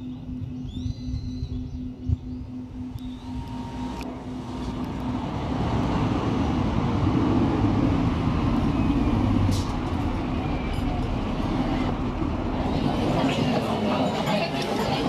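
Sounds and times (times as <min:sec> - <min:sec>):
steady low hum: 0:00.0 - 0:08.5
low rumbling vehicle noise: 0:00.0 - 0:15.0.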